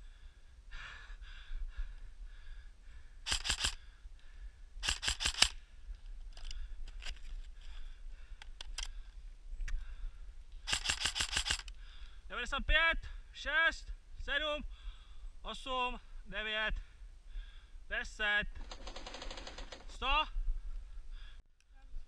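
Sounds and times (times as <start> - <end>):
airsoft gun full-auto bursts: 3.3 - 3.8, 4.8 - 5.6, 10.7 - 11.7, 18.6 - 20.0.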